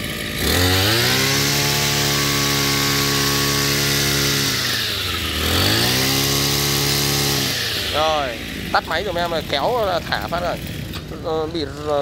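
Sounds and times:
brush cutter engine revving: 0.0 - 12.0.

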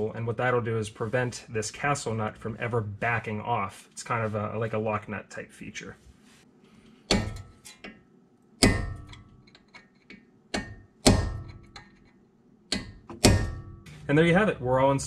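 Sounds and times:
hammer striking metal punch: 7.1 - 7.8, 8.6 - 9.3, 10.5 - 12.0, 12.7 - 14.1
metallic ring: 13.4 - 14.1.

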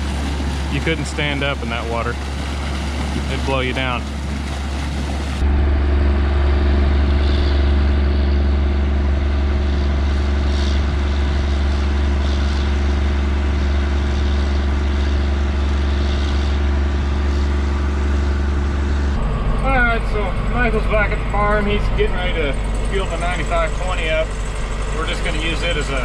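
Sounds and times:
water rushing from a pipe: 0.0 - 5.5, 19.6 - 26.0
diesel tractor engine drone: 0.0 - 26.0.

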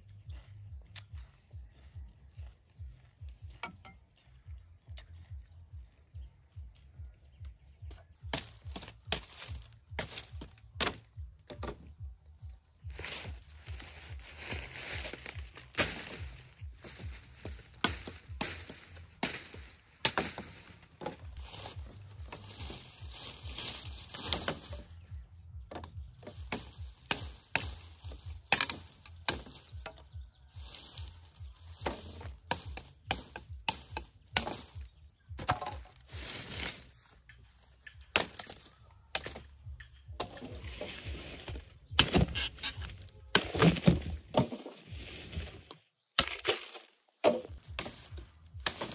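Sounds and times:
machete chopping sugarcane: 8.2 - 11.9, 14.6 - 21.2, 23.6 - 24.9, 25.7 - 30.1, 31.7 - 36.0, 38.0 - 39.5, 41.5 - 44.7, 46.2 - 48.9.

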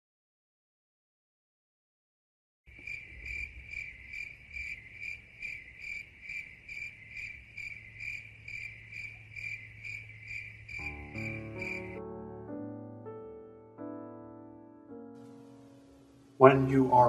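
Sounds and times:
crickets chirping: 2.7 - 12.0.

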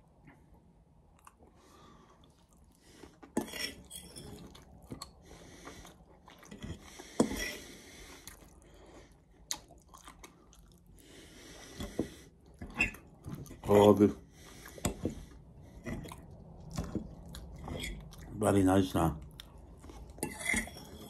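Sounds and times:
chewing: 1.2 - 1.6, 2.2 - 13.6, 14.4 - 18.4, 19.2 - 21.0
fork scraping a bowl: 3.3 - 4.5, 6.5 - 7.7, 12.6 - 13.8, 17.6 - 18.1, 20.2 - 21.0.

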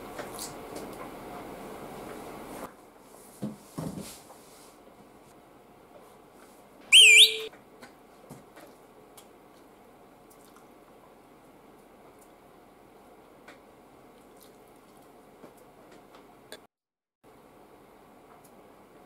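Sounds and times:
loud whistle: 6.9 - 7.5
faint chewing: 10.3 - 10.7, 14.1 - 15.2.

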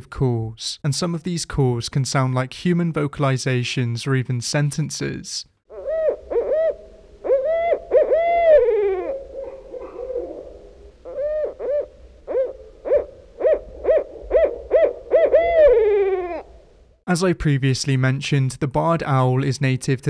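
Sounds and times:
owl hooting: 5.7 - 16.8.

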